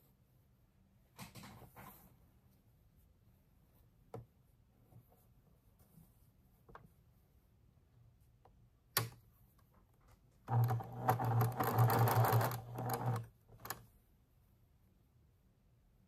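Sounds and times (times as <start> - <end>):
sewing machine stitching: 10.5 - 13.8.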